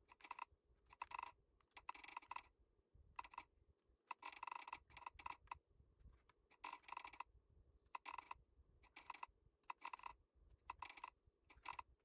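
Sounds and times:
mechanical keyboard typing: 0.0s - 2.5s, 3.2s - 3.5s, 4.1s - 5.6s, 6.2s - 7.3s, 7.9s - 12.0s.

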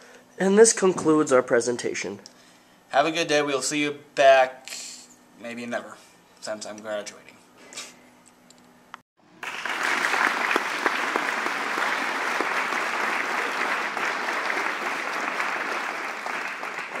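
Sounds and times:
crowd applauding: 9.2s - 17.0s.

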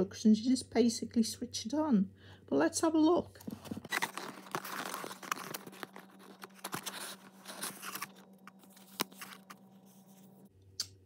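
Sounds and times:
paper rustling and scraping: 3.4s - 10.5s.

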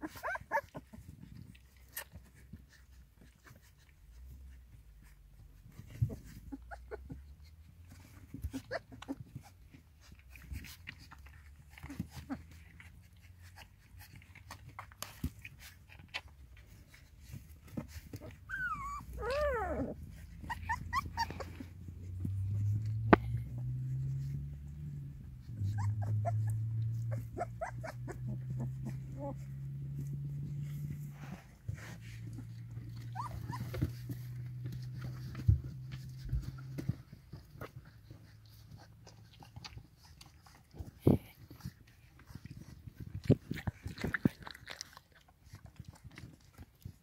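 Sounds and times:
puppy squeaks: 0.0s - 1.1s, 18.1s - 21.8s, 25.4s - 29.4s, 32.2s - 37.0s
low steady rumble: 0.0s - 47.0s
puppies suckling: 0.0s - 47.0s
puppy whining: 0.0s - 47.0s.

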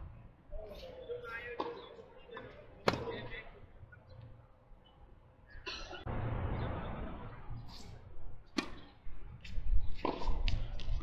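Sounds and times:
racket hitting tennis ball: 8.5s - 8.9s, 10.0s - 10.4s
tennis ball bouncing: 10.0s - 10.6s.

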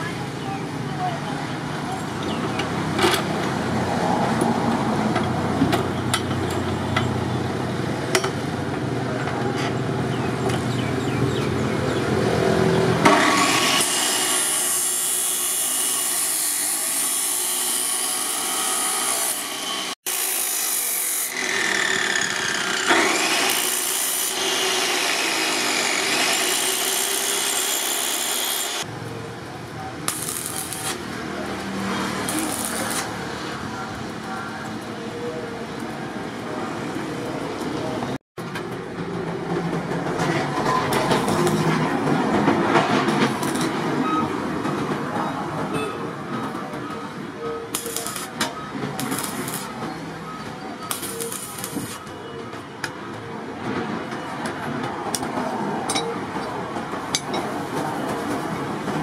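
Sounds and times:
chop saw cutting steel: 13.0s - 28.9s, 30.1s - 33.2s, 47.7s - 49.8s
arc welding crackle: 20.1s - 28.9s, 30.0s - 33.3s, 47.7s - 48.4s, 49.0s - 49.8s, 50.9s - 52.1s.

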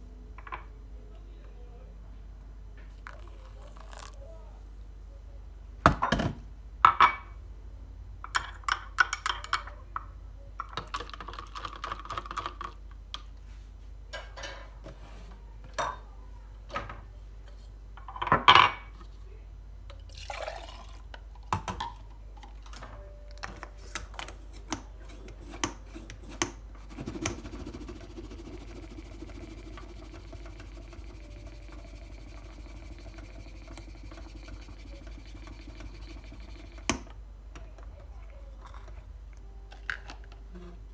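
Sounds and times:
low steady hum: 0.0s - 40.9s
liquid pouring into glass: 20.0s - 21.1s.

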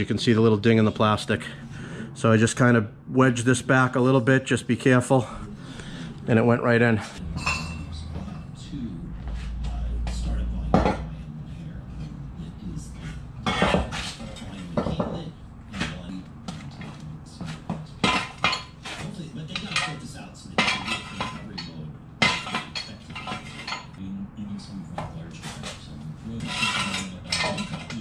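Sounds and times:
heavy steel parts clanking: 18.0s - 24.0s, 26.4s - 28.0s.

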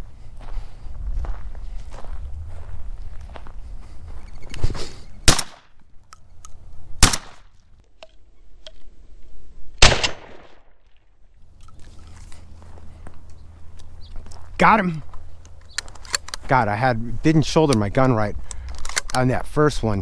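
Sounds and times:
shotgun shots with echo: 5.2s - 5.7s, 7.0s - 7.4s, 9.8s - 10.7s.

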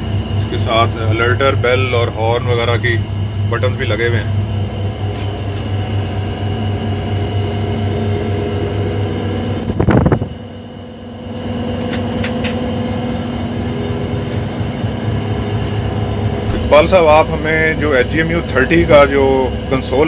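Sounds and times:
diesel locomotive engine idling: 0.0s - 9.6s, 10.4s - 20.0s
brief loud sound: 16.5s - 17.0s.

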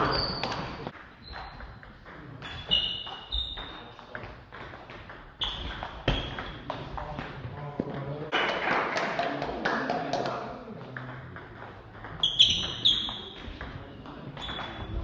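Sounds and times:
shoes squeaking on floor: 0.0s - 4.5s, 5.2s - 6.9s, 12.1s - 15.0s.

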